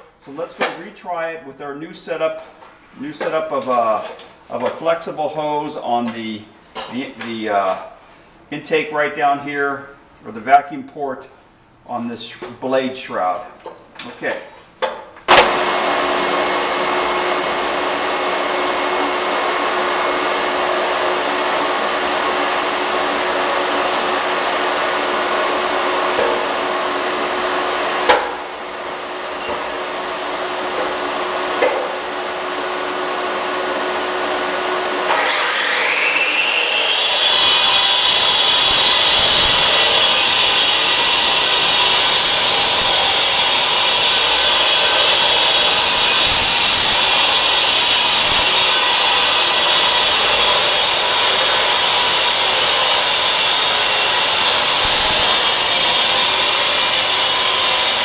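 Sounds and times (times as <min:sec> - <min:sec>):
concrete saw cutting: 0:15.3 - 0:58.0.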